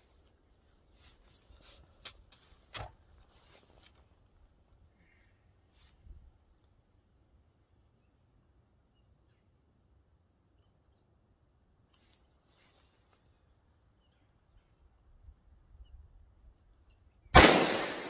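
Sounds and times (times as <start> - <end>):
soft rustles: 0.0 - 4.4, 11.9 - 13.4
faint bird chirps: 4.8 - 17.3.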